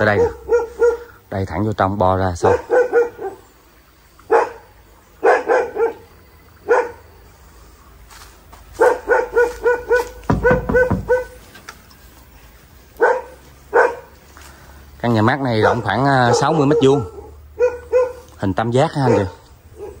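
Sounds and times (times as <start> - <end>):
dog barking: 0.0 - 1.2, 2.4 - 3.4, 4.3 - 7.0, 8.8 - 11.4, 13.0 - 14.1, 15.5 - 20.0.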